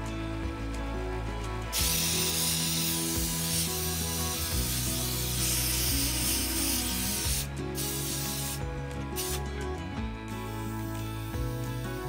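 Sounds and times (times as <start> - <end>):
background music: 0.0 - 12.0
air blow gun hissing: 1.7 - 8.6, 9.2 - 9.4.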